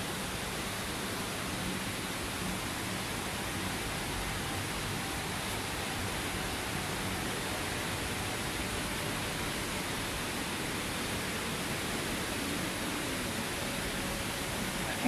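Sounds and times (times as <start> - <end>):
river water rushing: 14.5 - 15.0.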